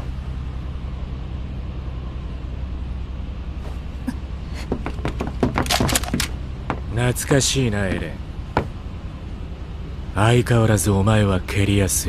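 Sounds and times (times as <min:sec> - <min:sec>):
low engine drone: 0:00.0 - 0:12.0
sharp clicks and knocks: 0:04.6 - 0:06.9.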